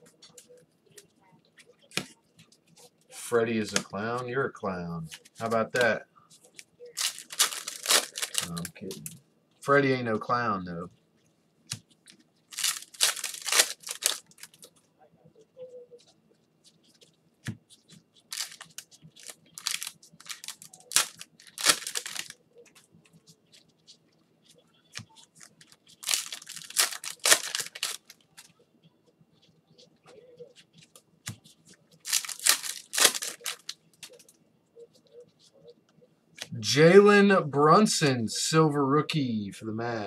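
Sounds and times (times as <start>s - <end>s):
cellophane wrappers tearing and crinkling: 7.0s - 8.8s, 12.5s - 14.6s, 18.3s - 22.4s, 25.5s - 28.2s, 32.0s - 34.2s.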